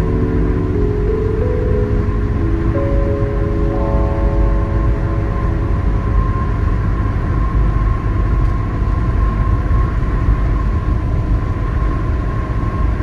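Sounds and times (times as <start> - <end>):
faint steady tone: 0.0 - 10.0
car road and engine rumble: 0.0 - 13.0.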